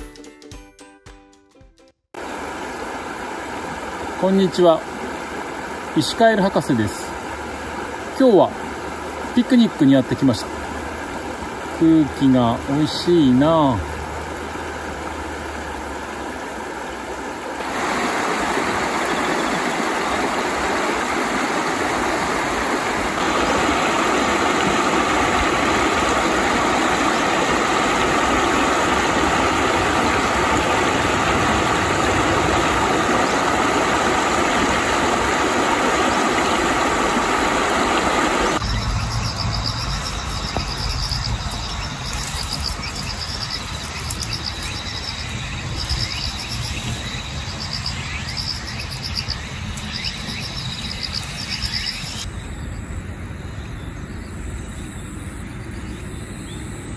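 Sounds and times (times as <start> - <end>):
stream rushing over stones: 2.2 - 52.3
insects trilling: 17.8 - 37.4, 38.5 - 56.9
low rumble: 38.6 - 43.2.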